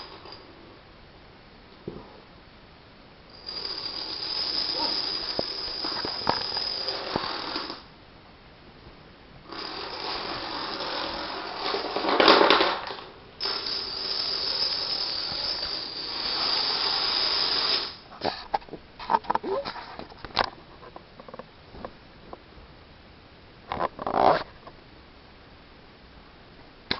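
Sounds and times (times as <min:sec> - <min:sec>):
dominoes toppling clatter: 0:03.4 - 0:07.8, 0:09.5 - 0:18.0.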